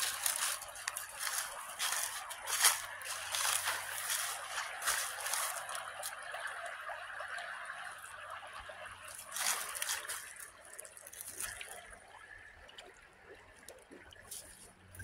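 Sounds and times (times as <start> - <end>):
rustle: 0.0 - 5.8
creek water trickling: 0.0 - 15.0.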